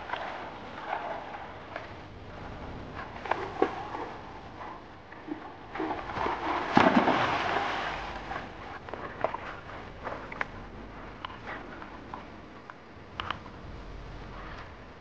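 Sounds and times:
dog swimming sloshing water: 0.0 - 12.7
dog splashing in water: 5.7 - 8.5
small snaps: 12.1 - 13.4.

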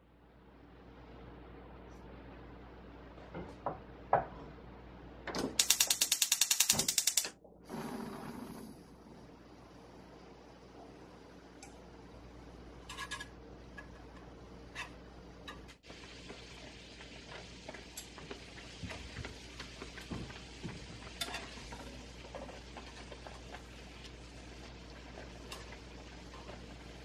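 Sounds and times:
broth simmering and sizzling: 7.7 - 27.0.

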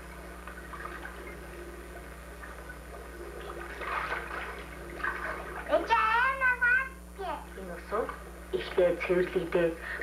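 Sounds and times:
water gurgling: 0.0 - 9.7
steady low hum: 0.0 - 10.0
water splashing in bathtub: 0.4 - 6.4.

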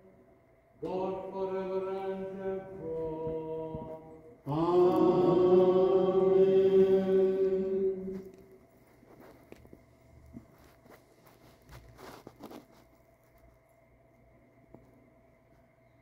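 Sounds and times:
liturgical chant singing: 0.8 - 8.6.

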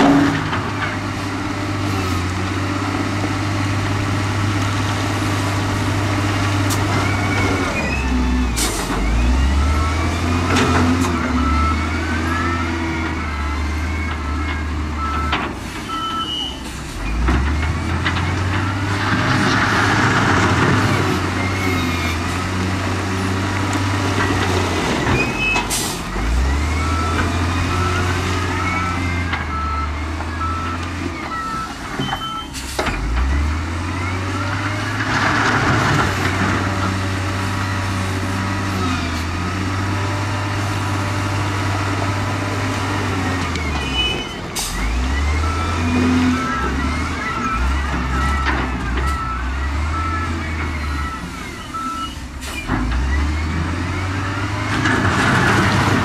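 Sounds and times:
diesel engines revving: 0.0 - 56.0
reversing alarm beeping: 6.8 - 22.3, 24.2 - 35.1, 40.4 - 55.8.

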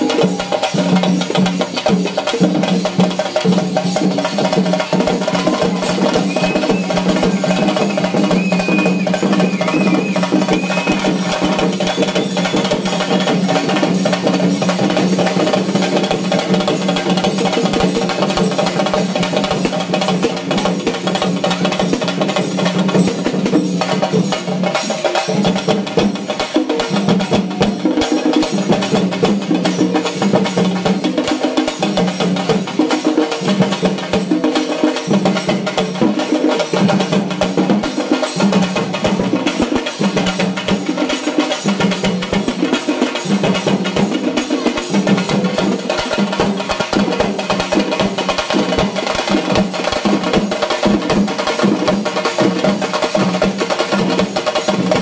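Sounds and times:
fast dense drumming: 0.0 - 55.0.

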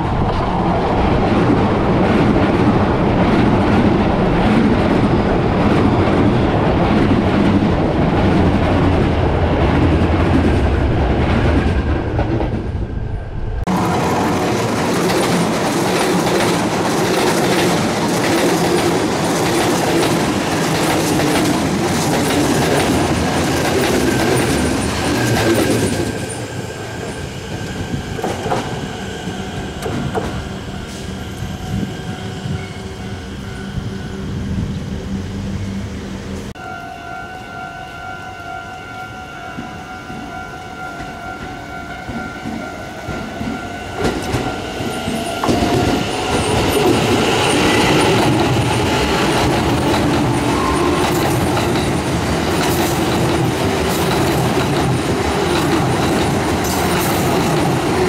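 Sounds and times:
train wheels rumbling: 0.0 - 36.6, 39.2 - 58.0
clickety-clack over rails: 13.6 - 28.9, 29.6 - 30.6, 41.0 - 58.0.

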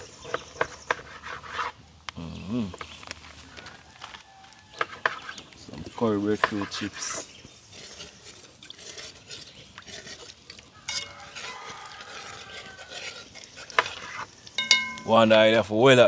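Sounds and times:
spoon stirring and scraping pot: 0.0 - 1.8, 4.7 - 15.3
thin ringing tone: 14.6 - 15.6.

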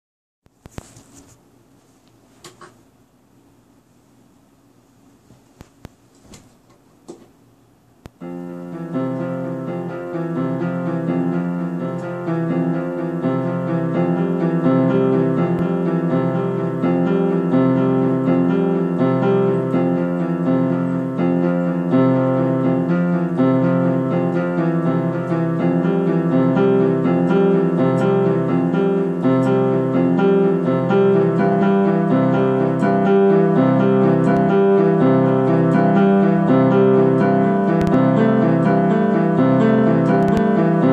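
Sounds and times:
electronic keyboard piano improvisation: 8.2 - 40.9.

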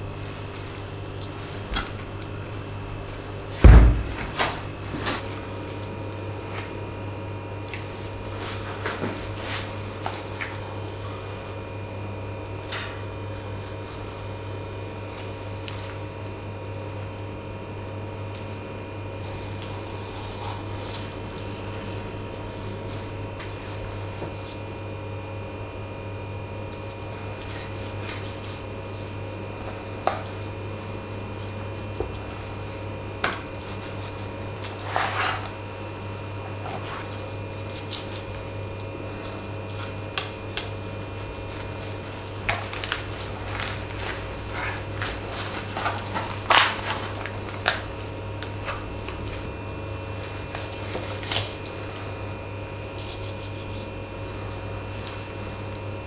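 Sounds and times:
steady low hum: 0.0 - 56.0
wet squishing of chicken skin: 26.5 - 56.0
chicken bones cracking: 36.6 - 51.8.

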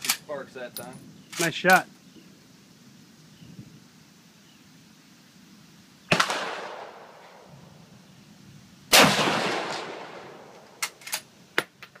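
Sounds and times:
rifle shots with echo: 6.1 - 7.1, 8.9 - 10.6.

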